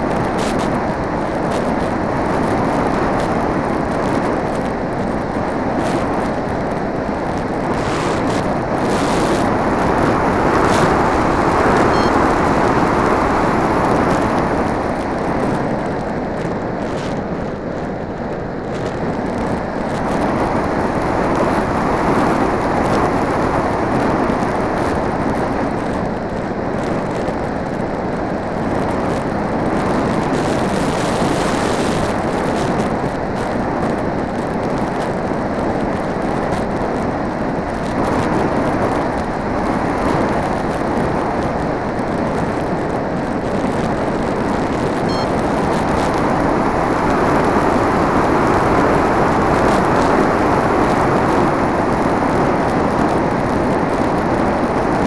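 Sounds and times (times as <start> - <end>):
propeller noise: 0.0 - 26.2, 38.0 - 55.0.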